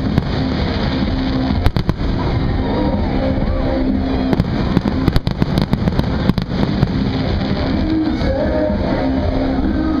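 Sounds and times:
music playing: 0.0s - 10.0s.

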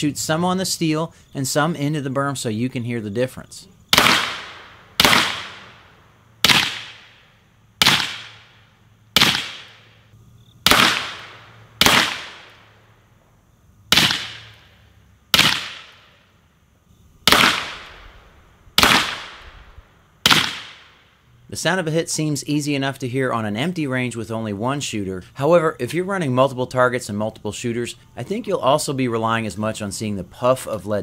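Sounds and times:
rifle shots with echo: 3.9s - 8.6s, 9.2s - 10.0s, 10.6s - 12.7s, 13.9s - 14.7s, 15.3s - 16.1s, 17.2s - 18.2s, 18.8s - 19.6s, 20.2s - 21.0s
bullet slapping steel plate: 7.8s - 8.6s, 9.2s - 10.0s, 13.9s - 14.6s.

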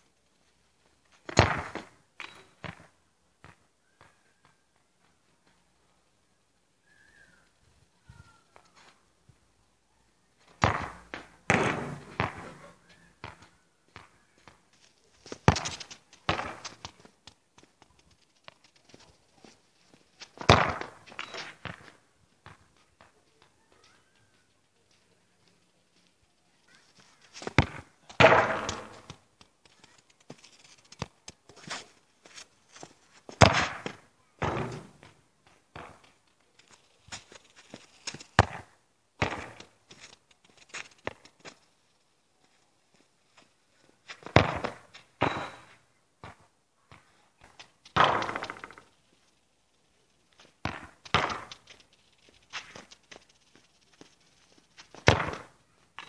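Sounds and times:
football being kicked: 1.3s - 1.9s, 10.6s - 12.6s, 15.4s - 17.1s, 20.4s - 22.6s, 27.5s - 29.2s, 33.4s - 35.2s, 38.4s - 39.7s, 44.3s - 47.1s, 48.0s - 48.8s, 50.6s - 51.6s, 55.0s - 55.5s
light taps of ball and feet: 10.4s - 41.7s.

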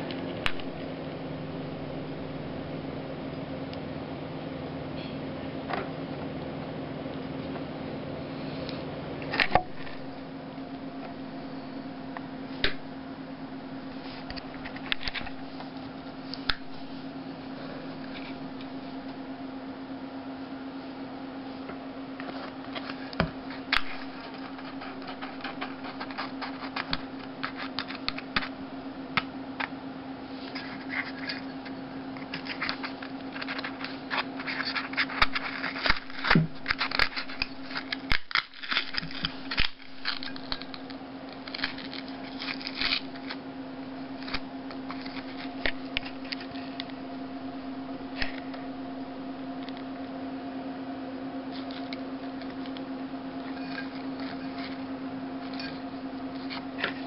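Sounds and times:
steady low hum: 0.0s - 57.0s
paper speaker cone crackling: 22.3s - 28.5s.

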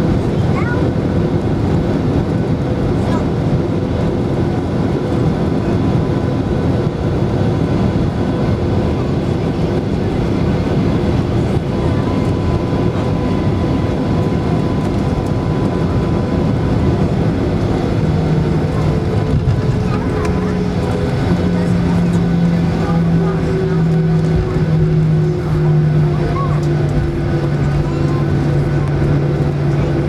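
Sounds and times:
airplane cabin engine rumble: 0.0s - 30.0s.

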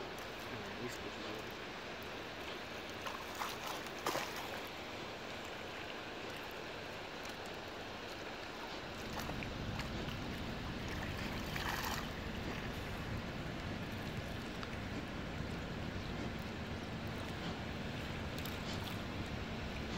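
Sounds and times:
water lapping at pebble shore: 0.0s - 19.9s
fish splashing: 3.0s - 6.6s, 8.7s - 13.0s
low rumble: 9.1s - 19.9s.

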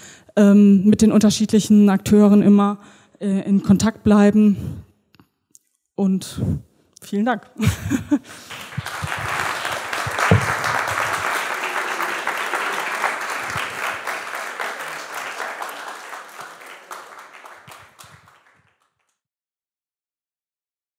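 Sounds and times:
audience applauding: 8.3s - 19.1s.

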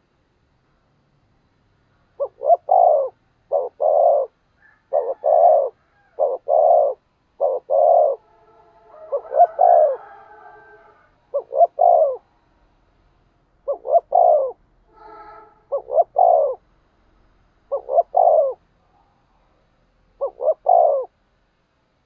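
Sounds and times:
dove cooing: 2.2s - 12.3s, 13.6s - 16.6s, 17.7s - 19.1s, 20.1s - 21.2s.

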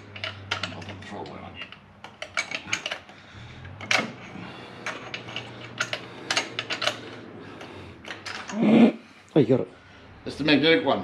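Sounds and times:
engine parts clicking and clacking: 0.0s - 8.6s.

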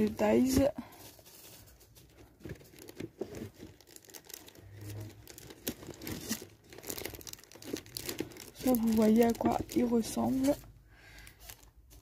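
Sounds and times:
plastic crinkling and rustling: 0.0s - 12.0s.

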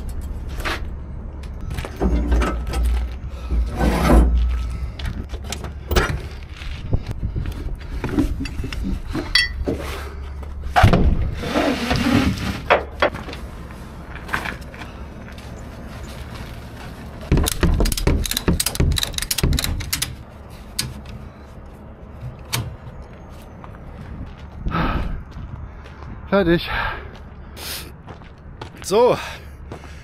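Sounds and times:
knocks clanks and rustling: 0.0s - 6.8s, 7.8s - 13.4s, 17.2s - 21.3s
steady low rumble: 0.0s - 11.4s, 12.8s - 30.0s.

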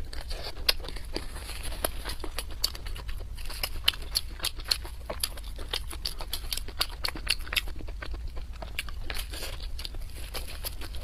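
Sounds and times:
wet chewing smacks: 0.0s - 11.0s.

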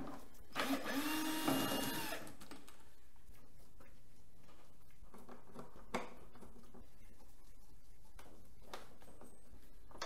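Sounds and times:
power drill whirring: 0.6s - 2.3s.

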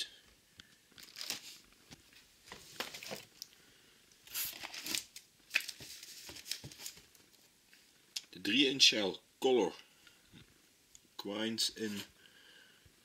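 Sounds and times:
cardboard and shrink-wrap rustling: 1.0s - 3.4s, 4.2s - 7.5s.

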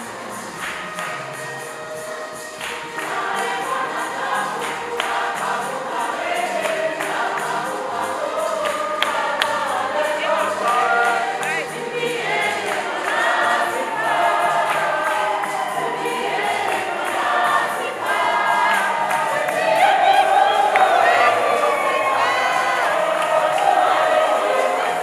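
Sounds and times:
choir singing gospel: 0.0s - 25.0s.

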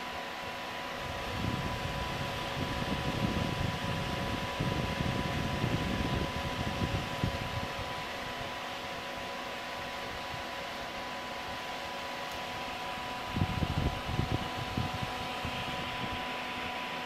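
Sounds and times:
cooling fans whooshing: 0.0s - 17.0s
faint steady whine: 0.0s - 17.0s
air rumble buffeting microphone: 1.0s - 8.5s, 13.2s - 16.3s.

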